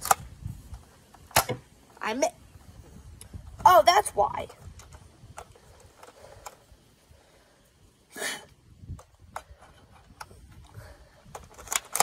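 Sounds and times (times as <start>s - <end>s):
plastic toy clicks: 11.3s - 12.0s.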